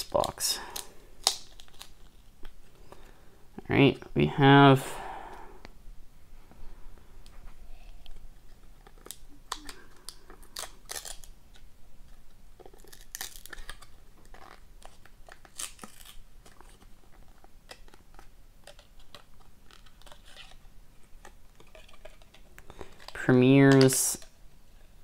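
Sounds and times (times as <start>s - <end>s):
card stock tearing: 12.6s - 16.9s.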